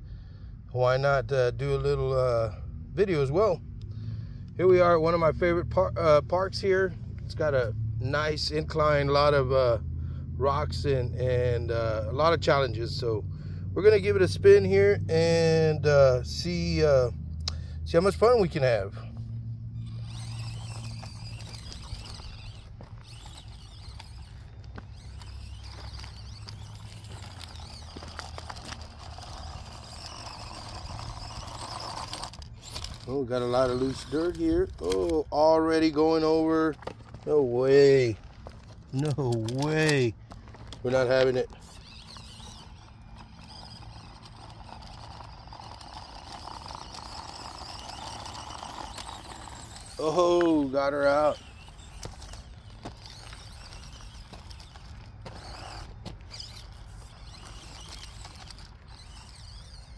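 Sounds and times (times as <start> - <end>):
small electric motor whining: 1.6 - 59.9
stones clicking under tyres: 16.1 - 59.9.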